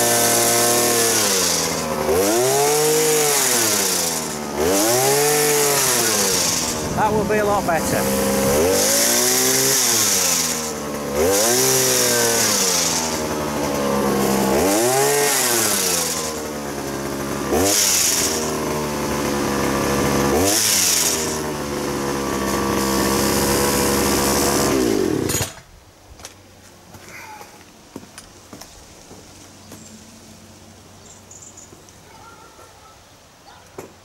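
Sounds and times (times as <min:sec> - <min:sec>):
hedge trimmer engine revving: 0:00.0 - 0:25.6.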